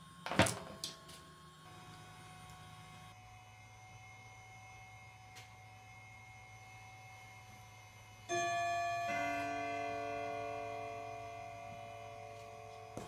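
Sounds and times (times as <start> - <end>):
low steady hum: 0.0 - 13.0
bell-like chime notes: 8.3 - 13.0.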